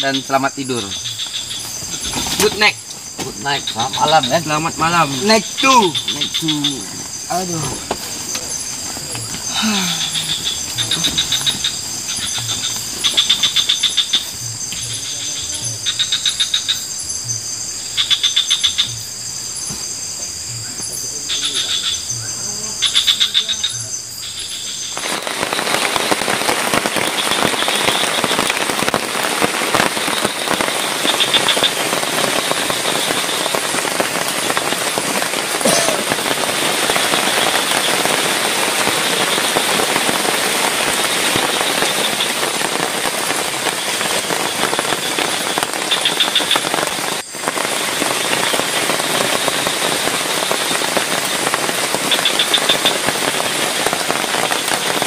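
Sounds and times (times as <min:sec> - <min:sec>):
heavy rain pouring: 0:00.0 - 0:55.0
high insect trills: 0:00.0 - 0:55.0.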